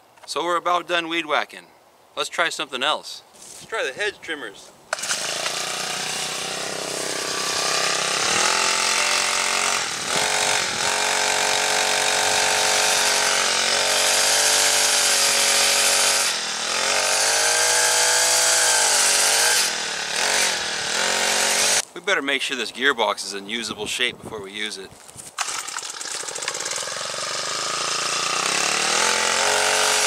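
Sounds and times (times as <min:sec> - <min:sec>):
trimmer engine revving: 0:04.9 - 0:21.8, 0:25.4 - 0:30.0.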